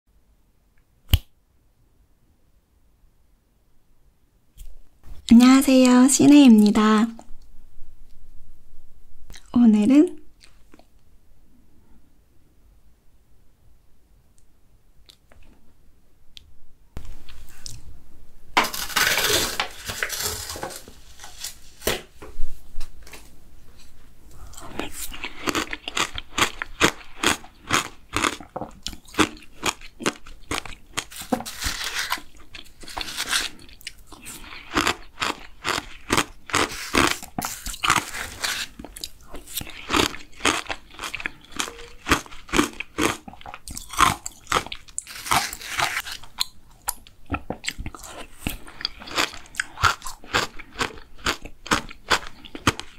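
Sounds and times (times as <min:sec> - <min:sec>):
rustling and scraping: 0:18.6 - 0:25.0, 0:31.1 - 0:33.6
crunching and chewing shaved ice: 0:24.5 - 0:52.9.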